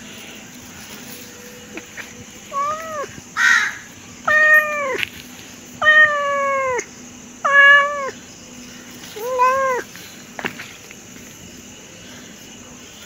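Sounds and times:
cat meowing: 0:02.5 - 0:05.0, 0:05.8 - 0:08.2, 0:09.1 - 0:09.9.

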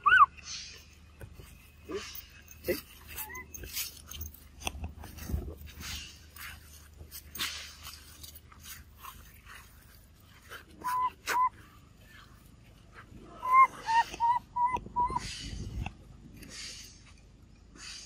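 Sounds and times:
baby monkey squeaking calls: 0:00.0 - 0:00.4, 0:03.1 - 0:03.7, 0:10.8 - 0:11.6, 0:13.4 - 0:15.5.

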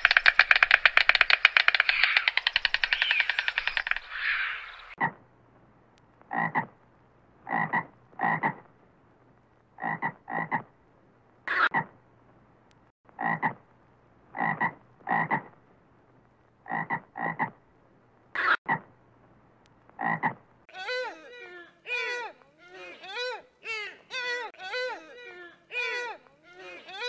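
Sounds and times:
frog croaking: 0:06.3 - 0:06.8, 0:07.4 - 0:08.7, 0:09.8 - 0:10.7, 0:13.2 - 0:13.6, 0:14.3 - 0:15.6, 0:16.6 - 0:17.6, 0:20.0 - 0:20.4.

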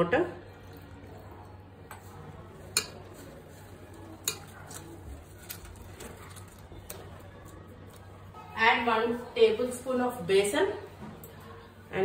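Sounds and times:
wet stirring by hand: 0:00.4 - 0:08.4.

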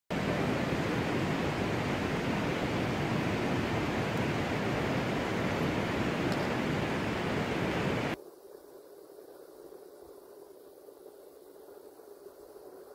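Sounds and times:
steady rushing noise: 0:00.1 - 0:08.2.

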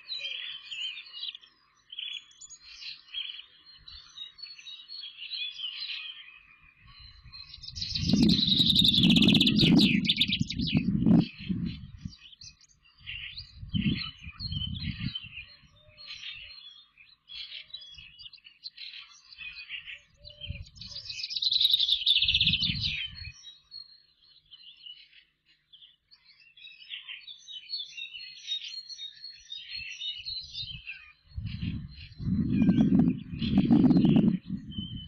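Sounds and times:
songbirds chirping and singing: 0:00.0 - 0:35.0
trilled bird song: 0:00.0 - 0:35.0
low rumbles: 0:31.4 - 0:35.0.

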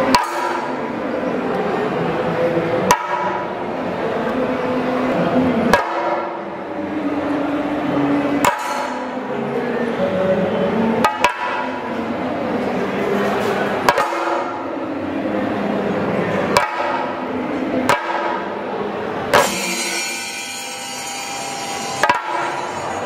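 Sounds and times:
drum stick strikes: 0:08.4 - 0:08.9, 0:11.0 - 0:11.7, 0:16.6 - 0:17.0, 0:22.0 - 0:22.6.

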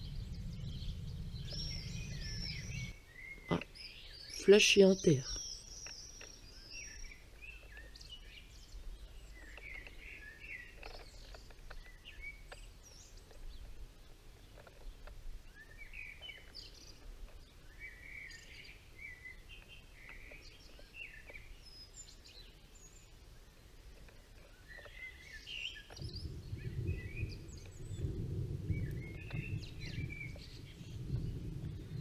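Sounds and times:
faint low rumble: 0:00.0 - 0:03.3, 0:26.0 - 0:32.0
songbirds singing: 0:00.0 - 0:32.0.

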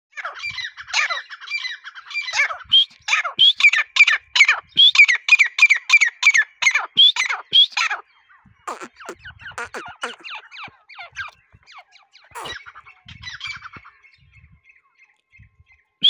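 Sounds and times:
francolin calling: 0:08.6 - 0:13.8.

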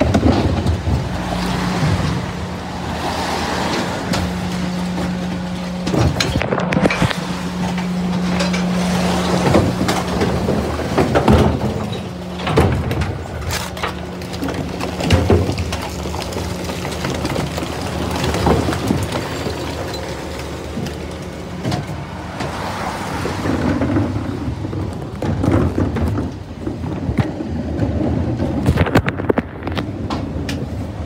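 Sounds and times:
bins knocking and clanking: 0:00.0 - 0:30.7
refuse truck engine humming: 0:00.0 - 0:31.0.

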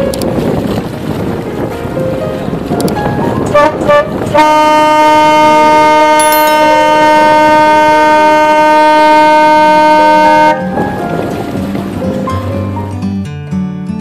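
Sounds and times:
boat horn blasts: 0:03.1 - 0:11.6.

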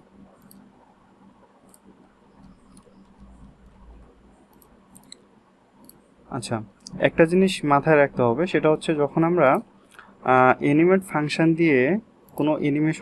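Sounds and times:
low steady hum: 0:00.0 - 0:13.0
mouse and keyboard clicks: 0:00.4 - 0:00.6, 0:01.7 - 0:03.8, 0:04.5 - 0:05.2.

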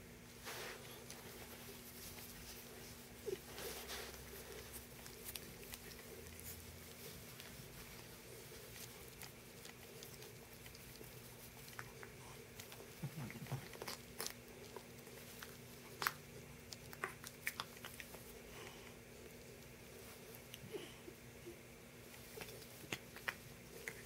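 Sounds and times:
faint steady hum: 0:00.0 - 0:24.0
cat scuffling on carpet: 0:00.2 - 0:09.5
soft clicks and rustles: 0:00.2 - 0:20.7, 0:21.9 - 0:24.0.

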